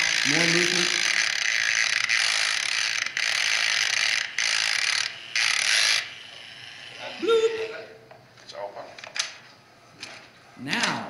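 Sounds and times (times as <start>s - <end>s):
rotary tool rattling buzz: 0.0s - 7.2s.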